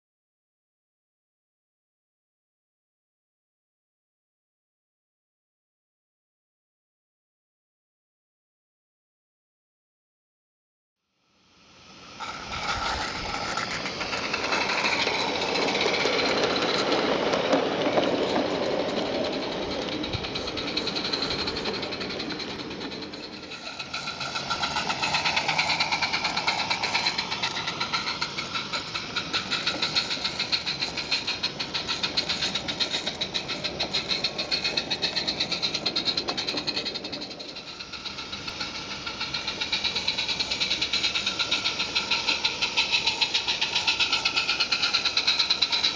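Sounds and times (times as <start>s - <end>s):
steam locomotive chuffing: 11.6s - 45.9s
wheels clicking on rails: 11.8s - 45.9s.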